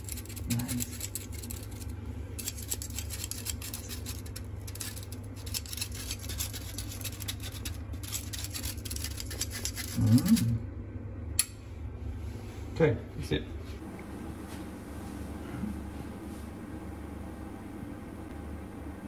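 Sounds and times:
person humming: 10.0s - 10.6s.

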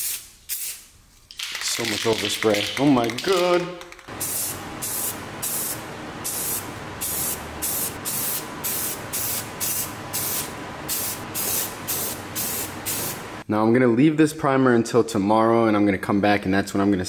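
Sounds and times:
aerosol spray can hissing: 4.1s - 13.2s.

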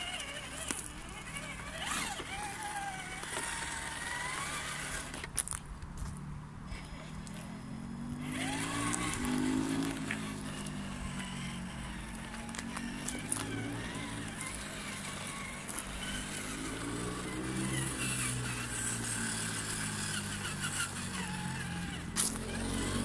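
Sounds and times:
electric motor whining: 0.0s - 5.4s, 6.7s - 23.0s
tyres crunching twigs: 22.1s - 22.7s.

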